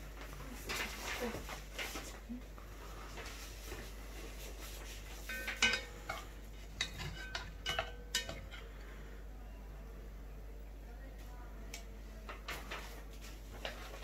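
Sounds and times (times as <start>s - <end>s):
metal tongs clinking against pot: 5.2s - 8.7s.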